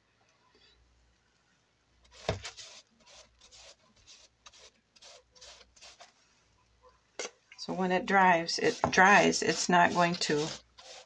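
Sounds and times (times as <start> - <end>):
paintbrush scrubbing: 2.2 - 6.1, 8.4 - 11.0.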